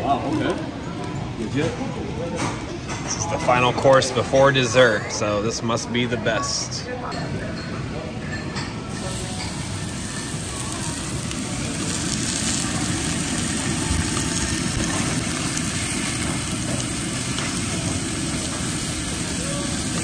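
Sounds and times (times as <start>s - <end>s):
steak sizzling on a grill: 8.9s - 20.0s.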